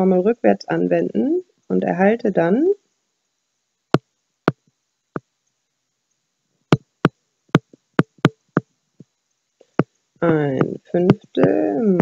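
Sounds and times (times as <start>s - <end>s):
stylus tapping on pen tablet: 4.0s - 4.6s, 6.7s - 9.1s, 9.8s - 12.0s.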